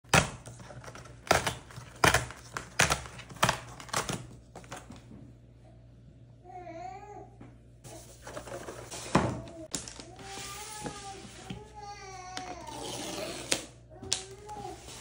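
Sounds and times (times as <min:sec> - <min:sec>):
cardboard rustling: 0:07.9 - 0:11.8, 0:12.4 - 0:15.0.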